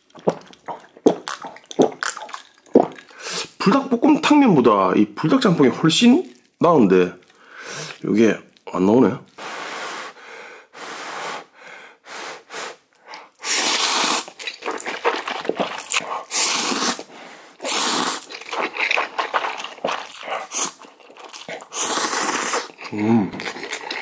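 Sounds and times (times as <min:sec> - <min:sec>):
chewing: 0:00.0 - 0:03.6, 0:12.9 - 0:24.0
person slurping noodles: 0:00.2 - 0:03.6, 0:09.4 - 0:24.0.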